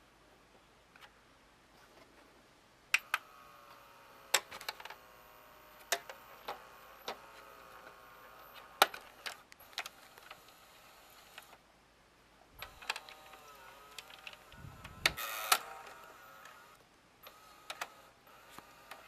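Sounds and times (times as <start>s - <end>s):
faint steady whine: 0.0s - 19.0s
sharp mechanical clicks: 5.7s - 11.6s, 12.6s - 19.0s.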